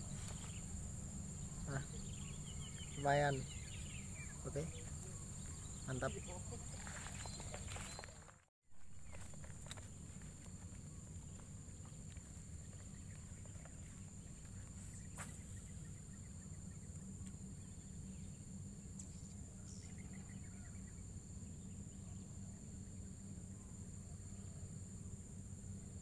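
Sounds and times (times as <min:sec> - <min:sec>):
faint chirps: 0:00.0 - 0:08.3
insects droning: 0:00.0 - 0:26.0.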